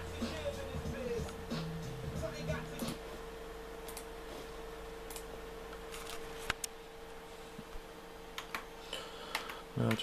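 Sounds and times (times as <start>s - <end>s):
faint steady hum: 0.0s - 10.0s
computer mouse clicks: 3.8s - 4.1s, 5.1s - 5.3s.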